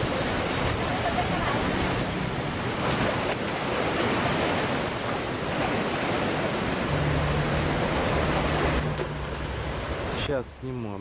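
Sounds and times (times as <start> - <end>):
sea surf breaking over rocks: 0.0 - 11.0.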